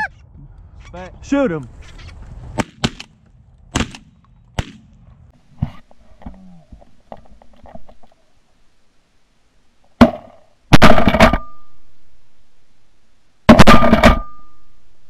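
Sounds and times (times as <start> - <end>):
shotgun blasts: 2.6 - 4.9, 13.5 - 14.5.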